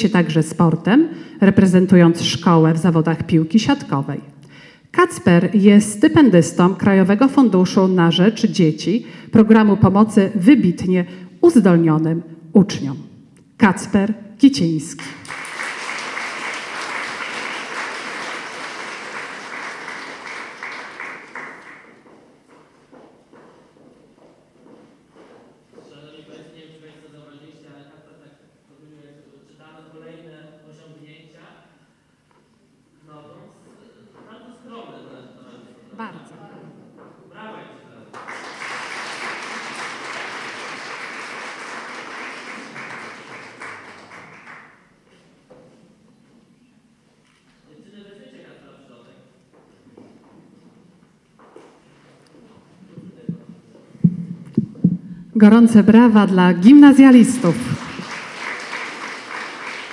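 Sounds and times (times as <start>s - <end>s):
audience applauding: 15.0s - 22.7s, 38.1s - 44.9s, 57.4s - 59.9s.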